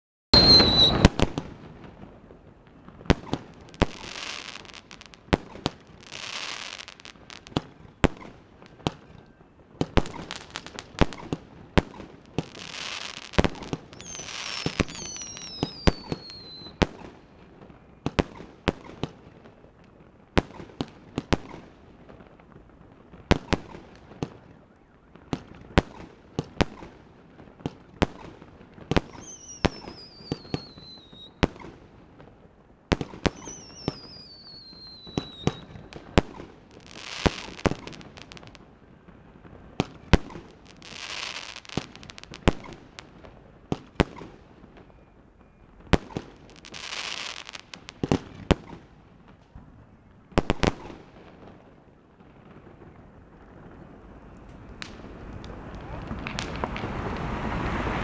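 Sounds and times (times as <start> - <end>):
fireworks bursting with sharp bangs: 0.3 - 58.0
falling whistles: 0.4 - 1.1, 13.9 - 16.8, 29.1 - 31.4, 33.3 - 36.0
crackling hiss: 0.4 - 58.0.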